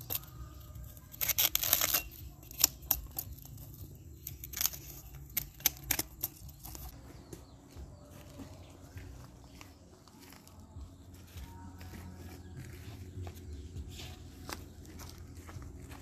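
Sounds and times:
cleaver chopping bamboo shoot: 0.0s - 6.9s.

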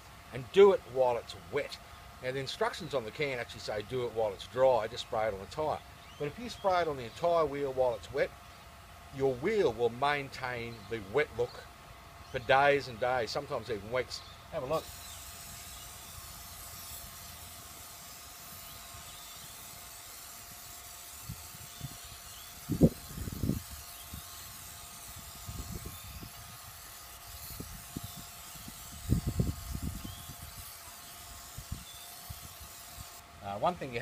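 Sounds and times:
aerosol can spray hissing: 14.6s - 33.2s.

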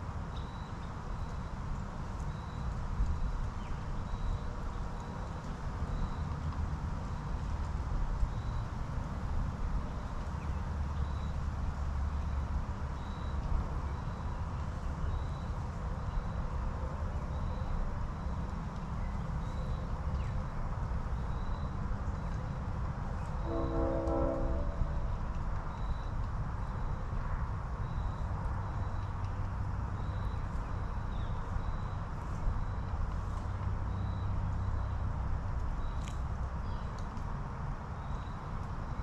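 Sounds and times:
distant train horn: 23.4s - 25.2s.

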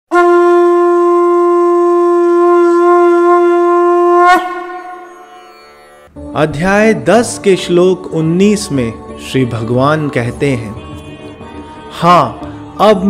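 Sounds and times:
conch shell blown: 0.1s - 6.1s.

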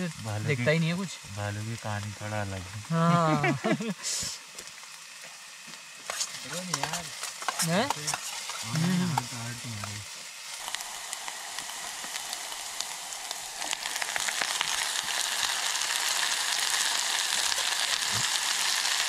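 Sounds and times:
food sizzling in a pan: 0.0s - 19.0s
stirring taps: 6.0s - 10.0s.

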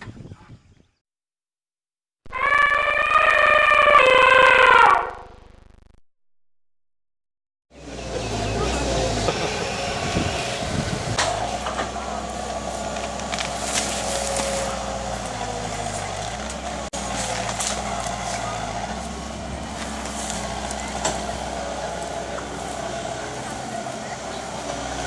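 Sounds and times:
faint voices: 7.8s - 25.0s
large vehicle engine running: 7.8s - 25.0s.

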